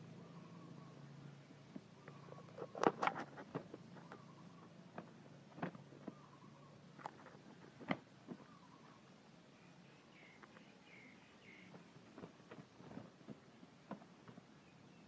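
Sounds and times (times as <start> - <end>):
rooster feet scraping: 2.4 - 4.2.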